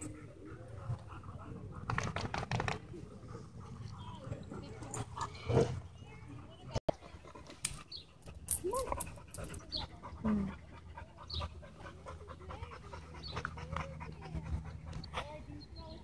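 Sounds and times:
dog panting: 8.9 - 15.8.

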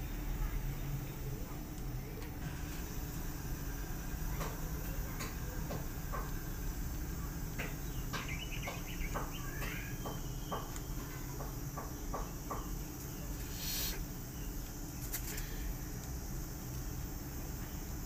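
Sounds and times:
faint high chirps: 7.2 - 14.7.

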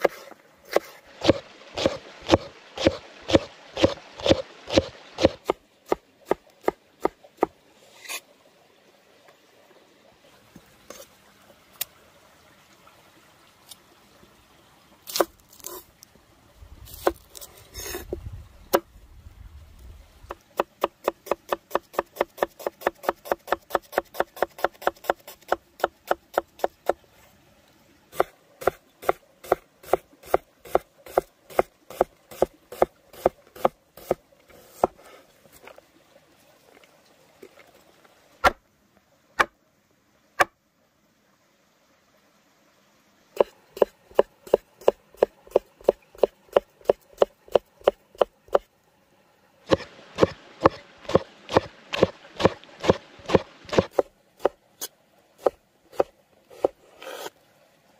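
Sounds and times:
knife chopping on wooden board: 28.2 - 35.0.

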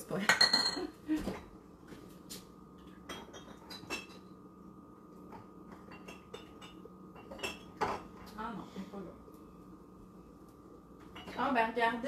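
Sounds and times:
low steady hum: 0.0 - 12.0
kitchenware and glass clinking: 0.2 - 1.5, 2.9 - 4.3, 5.3 - 8.4, 11.0 - 11.6.

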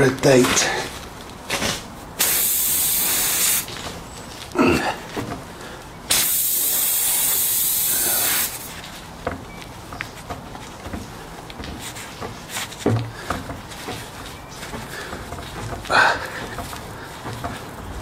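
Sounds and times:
air hissing out of tyre: 2.2 - 3.7, 6.1 - 8.7
hands and tools knocking on tyre: 9.2 - 18.0.

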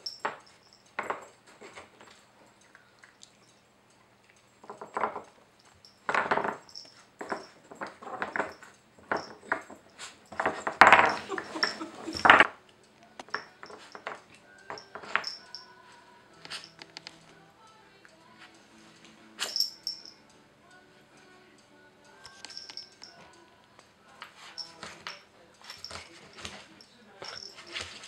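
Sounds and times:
wooden pieces knocking and scraping: 4.6 - 5.3, 6.1 - 12.5.

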